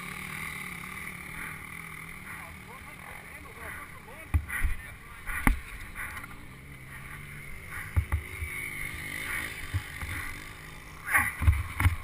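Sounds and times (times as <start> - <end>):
thumps and knocks of motorbike: 4.3 - 6.4, 7.8 - 8.6, 9.6 - 10.4, 11.1 - 12.0.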